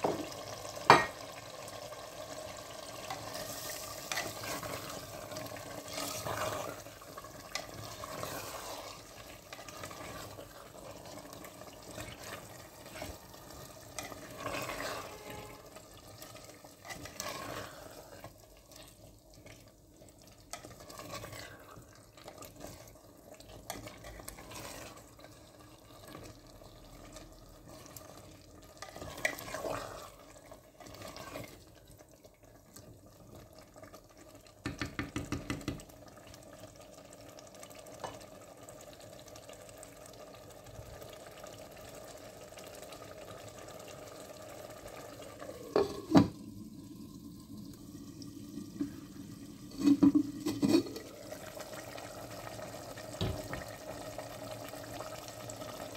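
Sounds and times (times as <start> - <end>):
spoon stirring in a pot: 2.8 - 31.8, 34.6 - 35.9, 49.7 - 51.4.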